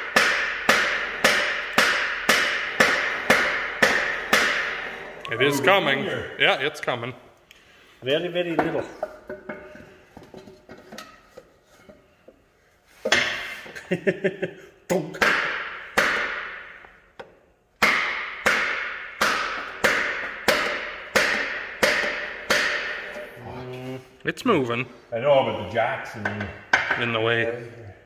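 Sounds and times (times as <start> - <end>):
hammer striking metal: 0.0 - 4.9, 17.8 - 23.2.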